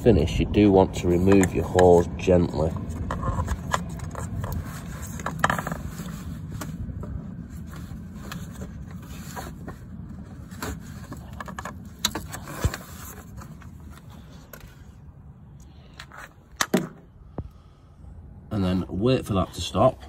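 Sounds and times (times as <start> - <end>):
low steady rumble: 0.0 - 20.0
hose knocking and scraping: 1.0 - 14.9.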